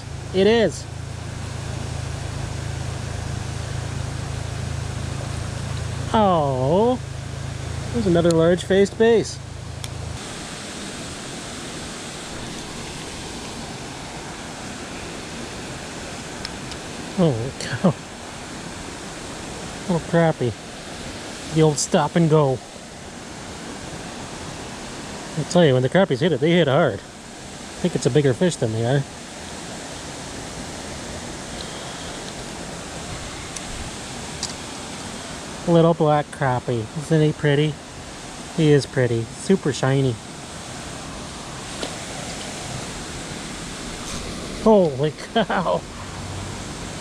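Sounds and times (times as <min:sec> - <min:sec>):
running water rushing: 0:00.0 - 0:47.0.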